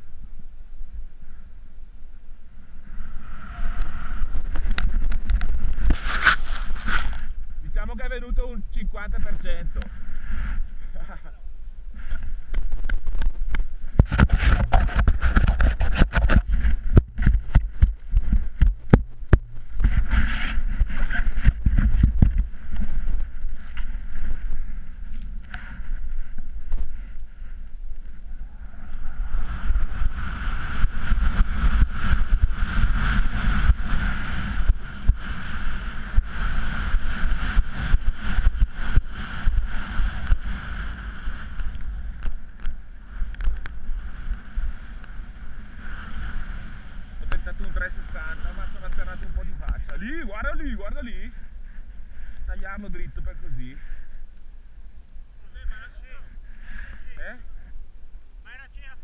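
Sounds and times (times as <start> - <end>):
skis carving through powder snow: 2.7 - 8.6, 11.9 - 51.3
wind buffeting microphone: 12.0 - 54.2.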